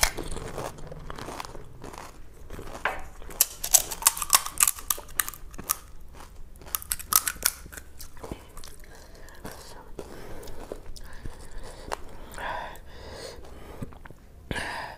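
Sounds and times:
dry shells cracking: 0:00.0 - 0:09.8
crunchy food being chewed: 0:00.0 - 0:14.2.

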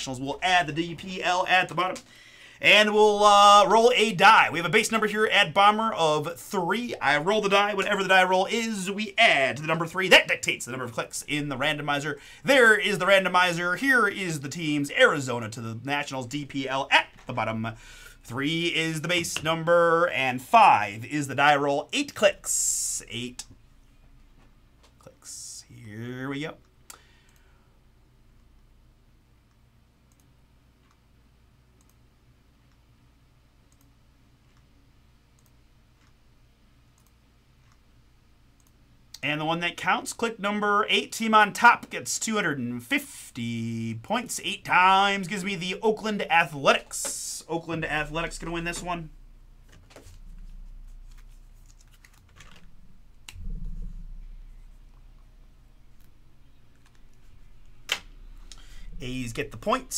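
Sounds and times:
low steady hum: 0:00.0 - 0:59.9
computer mouse clicks: 0:31.8 - 0:32.0, 0:33.7 - 0:33.9, 0:35.4 - 0:36.2, 0:37.0 - 0:37.8.

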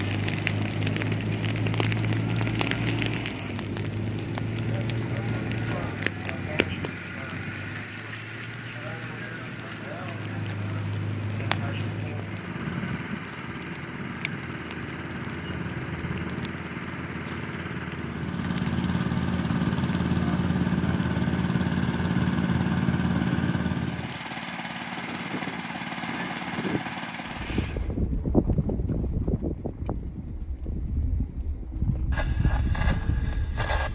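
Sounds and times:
burning brush crackling: 0:00.0 - 0:33.9
hiss: 0:26.9 - 0:27.8, 0:32.1 - 0:33.9.

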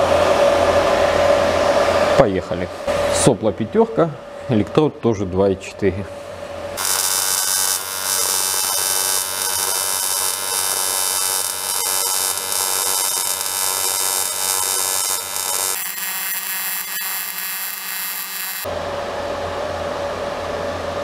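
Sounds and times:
welding arc buzzing and hissing: 0:06.8 - 0:18.7.

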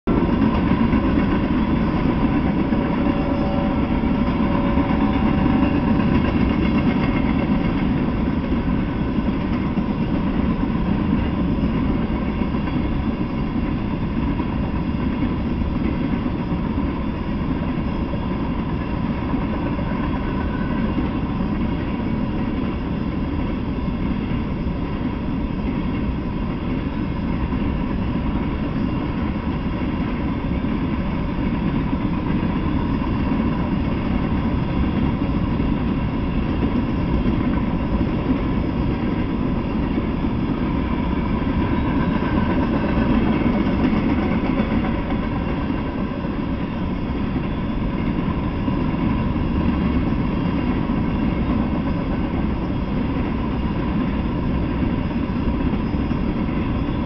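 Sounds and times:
freight train wheels rumbling: 0:00.0 - 0:57.0.

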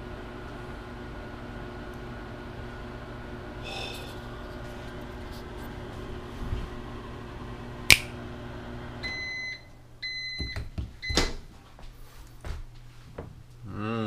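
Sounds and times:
microwave oven humming: 0:00.0 - 0:11.7
sharp click: 0:07.9 - 0:08.1
microwave oven beeps: 0:09.0 - 0:11.4.

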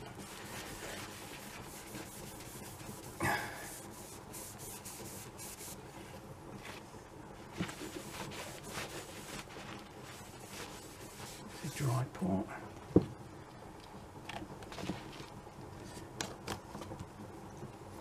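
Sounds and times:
cloth rubbing on metal cylinder: 0:00.0 - 0:12.1.

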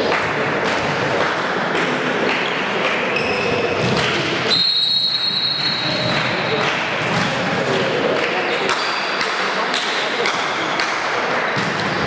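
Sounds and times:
spectator and player noise: 0:00.0 - 0:12.0
referee whistle blast: 0:04.5 - 0:06.0.

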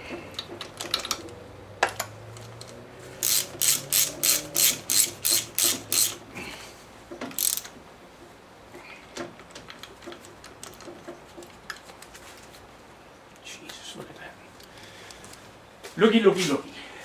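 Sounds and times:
ratchet wrench clicking: 0:02.6 - 0:06.2, 0:07.3 - 0:07.7.

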